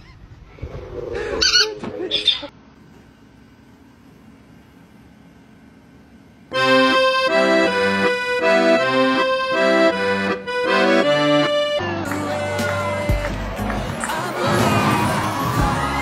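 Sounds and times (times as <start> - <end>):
bouncy music with chords: 6.6 - 16.0.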